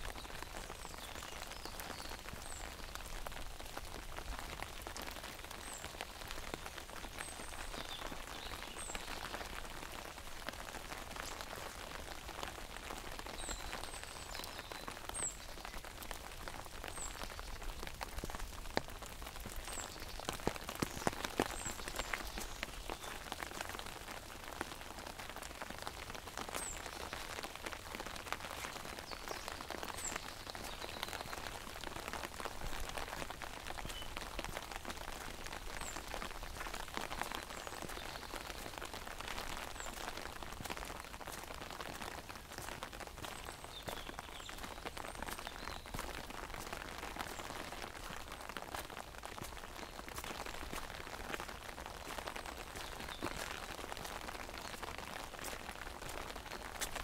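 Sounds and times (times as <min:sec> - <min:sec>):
rain pattering on an umbrella: 0:00.0 - 0:57.0.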